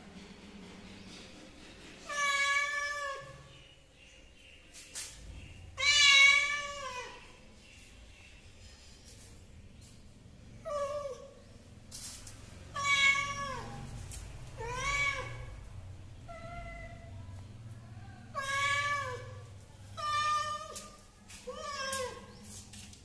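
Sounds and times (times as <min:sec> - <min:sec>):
cat meowing: 0:12.8 - 0:13.8, 0:14.6 - 0:15.5, 0:18.4 - 0:19.4.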